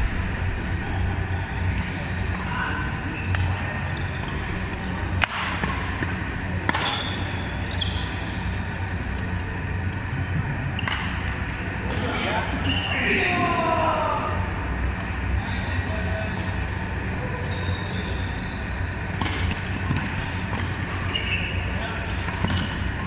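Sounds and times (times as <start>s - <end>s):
low hum in echoing hall: 0.0s - 23.0s
shoes squeaking on court floor: 1.6s - 5.2s, 6.8s - 8.4s, 9.9s - 11.2s, 12.2s - 13.2s, 17.4s - 23.0s
rackets hitting a shuttlecock: 5.1s - 7.3s, 19.1s - 21.0s.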